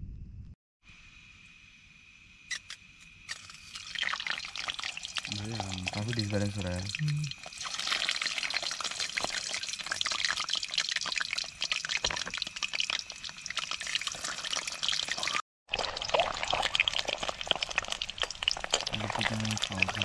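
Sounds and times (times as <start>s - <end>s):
crackling and spitting oil: 2.5s - 20.0s
eggs frying in hot oil: 3.2s - 20.0s.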